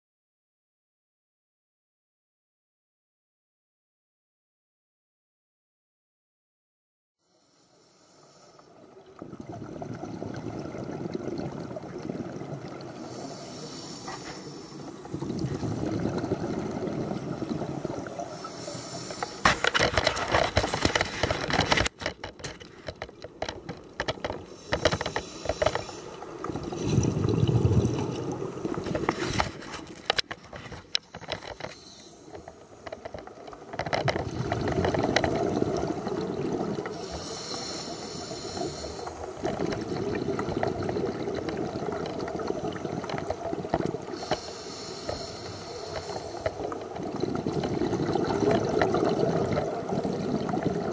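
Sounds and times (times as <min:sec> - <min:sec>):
regulator hissing inhale: 0:07.2 - 0:08.9, 0:12.9 - 0:15.1, 0:18.1 - 0:19.8, 0:24.5 - 0:27.0, 0:30.9 - 0:32.8, 0:36.9 - 0:39.3, 0:44.1 - 0:46.8
gurgling exhaled bubbles: 0:09.0 - 0:21.9, 0:24.4 - 0:30.3, 0:31.1 - 0:50.9.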